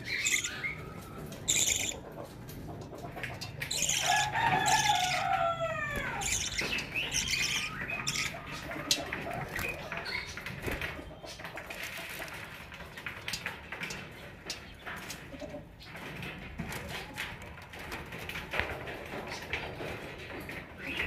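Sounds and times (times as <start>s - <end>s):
budgerigars chattering: 0.0s - 2.2s, 3.0s - 5.2s, 5.9s - 10.4s.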